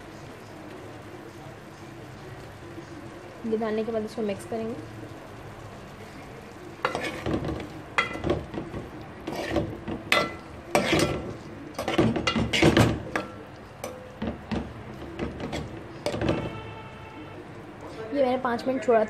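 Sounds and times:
metal spoon stirring in a metal pot: 6.7s - 16.7s.

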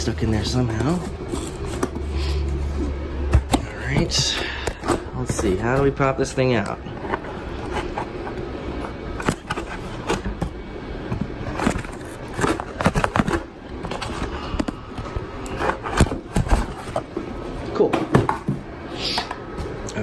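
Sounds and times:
cardboard box scraping and rustling: 0.3s - 3.0s, 4.9s - 10.4s, 11.3s - 14.4s.

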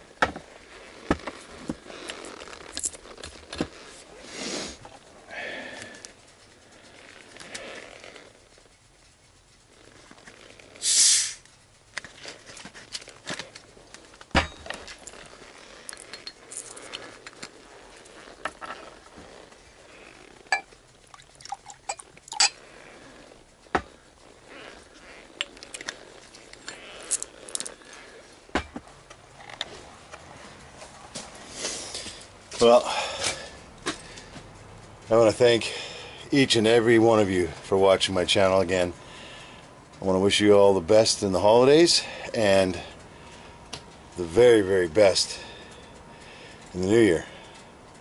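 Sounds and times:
fizz of escaping gas: 10.8s - 11.4s
glass bottles clinking: 15.9s - 16.4s, 21.4s - 22.6s.

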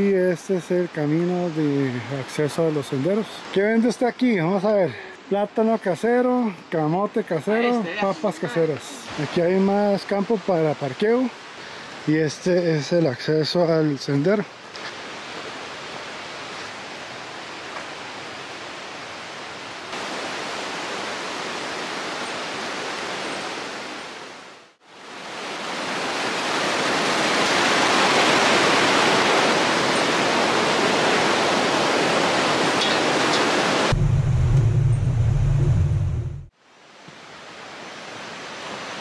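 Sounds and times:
river rapids rushing: 19.9s - 34.0s.

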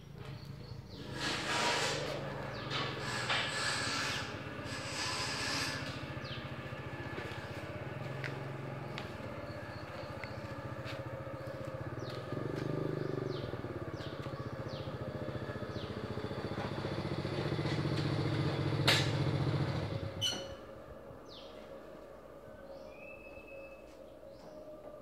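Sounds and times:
small engine running: 0.2s - 20.4s
birds chirping: 5.7s - 17.7s.

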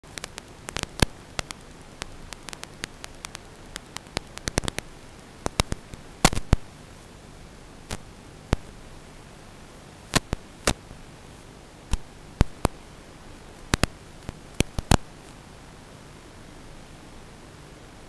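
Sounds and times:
sharp crackles and pops: 0.0s - 8.9s, 10.0s - 10.9s, 11.8s - 15.4s
static hiss: 0.0s - 18.0s.

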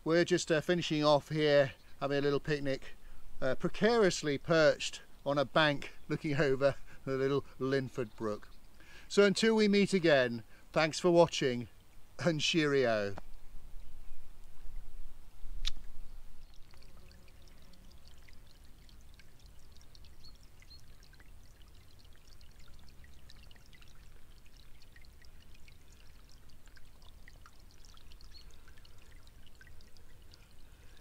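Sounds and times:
stream running over pebbles: 0.0s - 13.7s, 14.4s - 31.0s
sharp click: 15.6s - 15.8s.

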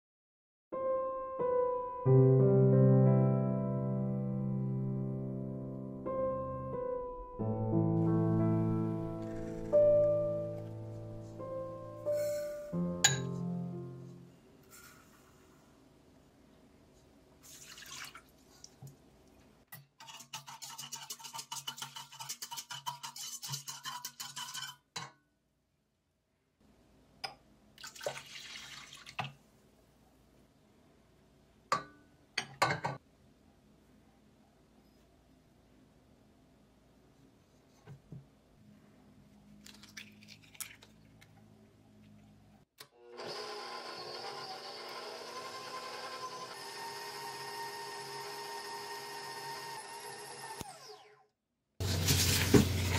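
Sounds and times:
water pouring into metal bowl: 17.4s - 18.4s, 27.8s - 29.2s, 51.8s - 52.9s
whisk clicking against metal bowl: 19.8s - 24.8s
egg shell cracking: 39.6s - 41.4s.

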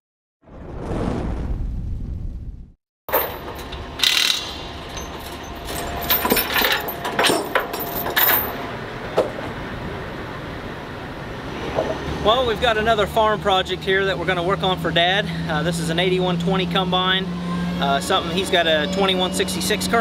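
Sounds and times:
metal tools clanking: 3.1s - 8.7s
outdoor background noise: 3.1s - 20.0s.

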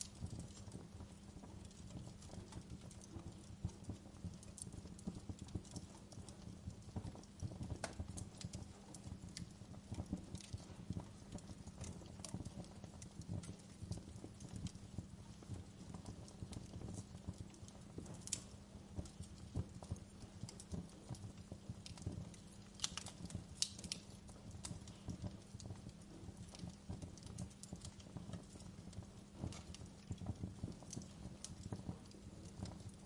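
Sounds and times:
fireplace crackling: 0.0s - 33.0s.

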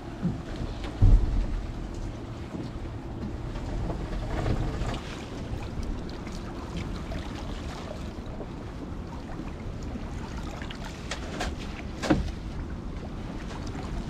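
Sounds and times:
water lapping around boat: 0.0s - 14.0s
wind rumbling on microphone: 0.0s - 14.0s
small splashes and drips: 4.9s - 8.5s, 9.1s - 12.4s.

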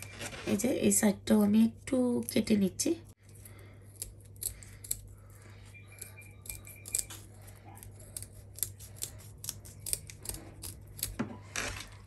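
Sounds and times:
scissors snipping fish fins: 6.4s - 11.2s.

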